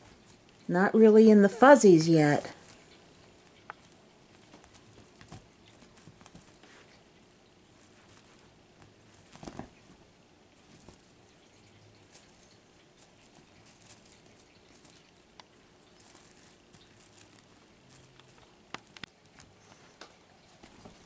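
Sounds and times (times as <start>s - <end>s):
kitten scrabbling on bedspread: 7.7s - 11.1s.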